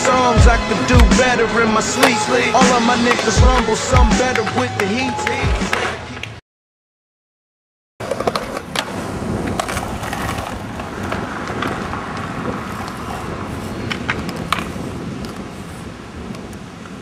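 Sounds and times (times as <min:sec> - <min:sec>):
skateboard wheels rolling on concrete: 0:00.0 - 0:06.4, 0:08.0 - 0:17.0
skateboard clacks: 0:08.0 - 0:15.5.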